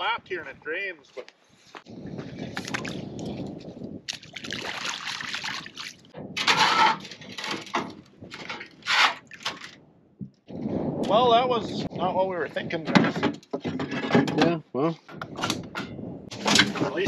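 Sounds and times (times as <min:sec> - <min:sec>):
water sloshing and splashing: 0:02.2 - 0:09.9.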